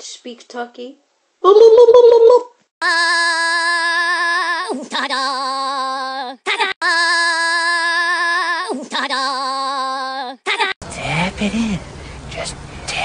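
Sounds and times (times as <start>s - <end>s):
person singing with vibrato: 2.8s - 11.8s.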